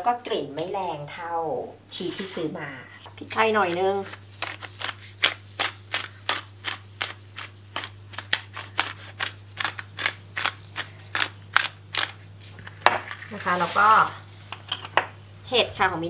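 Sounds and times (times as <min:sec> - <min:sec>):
pepper grinder clicking: 0:03.7 - 0:12.8.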